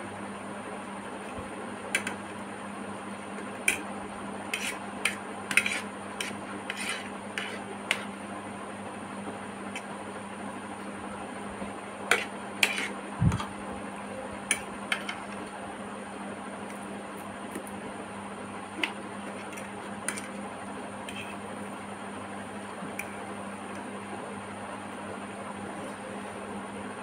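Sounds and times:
steady background hum: 0.0 - 27.0
metal fork scraping a plate: 4.5 - 8.1, 12.1 - 12.9.

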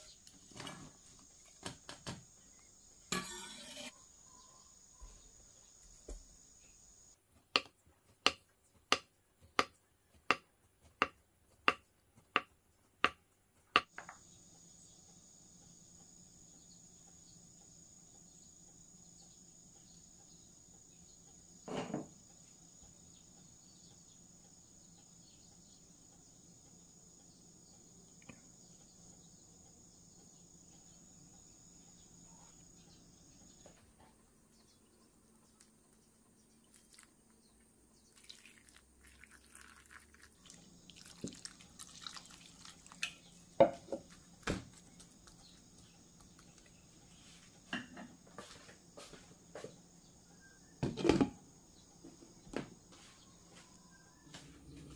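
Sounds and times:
knife chopping on wooden board: 7.6 - 13.2.

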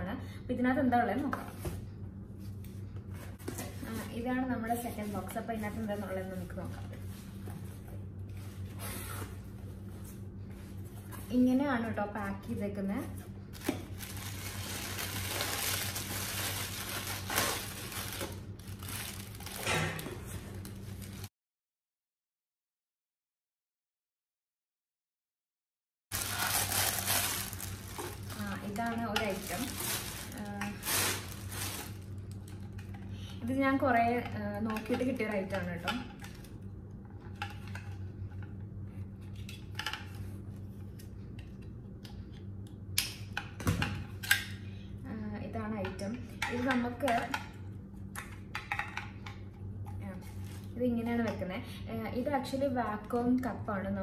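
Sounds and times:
steady low hum: 0.0 - 21.3, 26.1 - 54.0
packing paper crinkling: 13.5 - 21.3, 26.1 - 32.6.

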